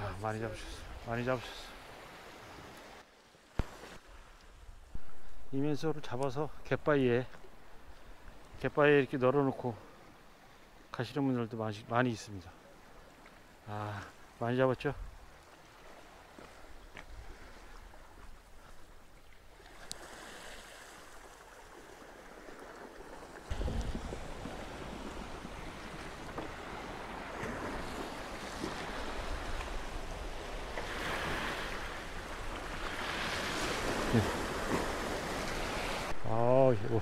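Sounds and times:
waves washing on rocky shore: 23.4 - 36.2
wind buffeting microphone: 23.5 - 31.1.

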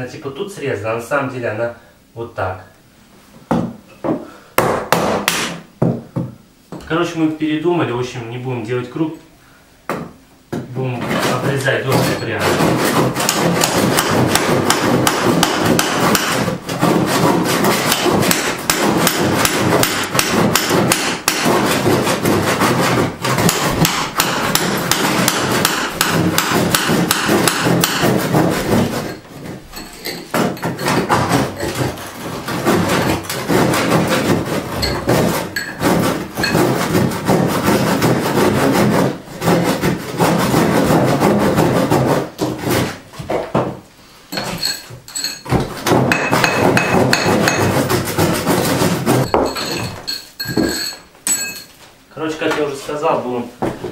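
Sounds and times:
hand saw cutting wood: 11.1 - 29.6, 30.3 - 43.0, 45.8 - 49.8.

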